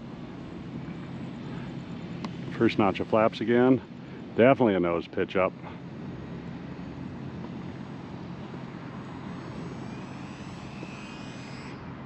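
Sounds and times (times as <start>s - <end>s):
outdoor noise: 0.0s - 12.0s
model plane motor whine: 5.8s - 12.0s.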